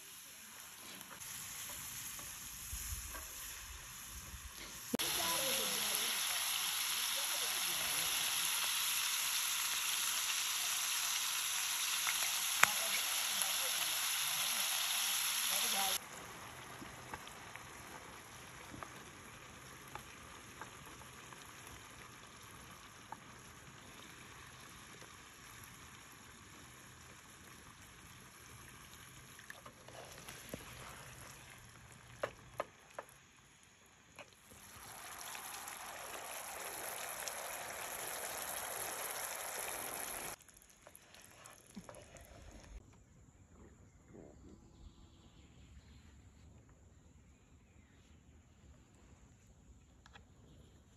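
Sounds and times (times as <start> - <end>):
meatballs sizzling in a frying pan: 0.0 - 29.4, 30.4 - 40.4.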